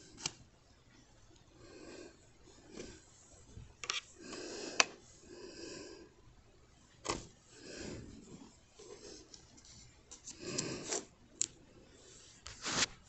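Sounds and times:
soft breathing: 0:01.5 - 0:06.3, 0:07.4 - 0:12.5.

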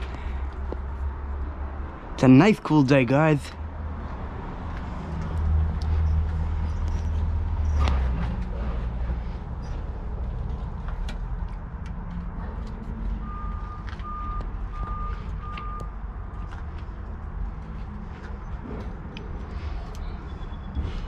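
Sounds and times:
vehicle reversing alarm beeping: 0:13.2 - 0:16.5, 0:20.1 - 0:21.0.

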